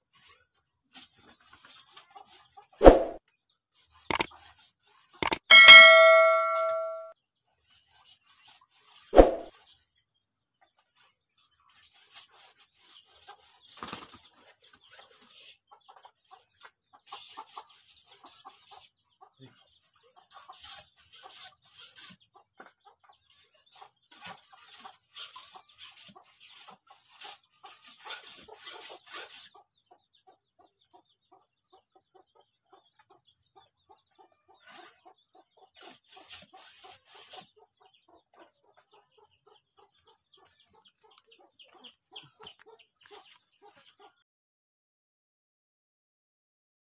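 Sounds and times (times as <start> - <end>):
chickens clucking: 10.6 - 44.2.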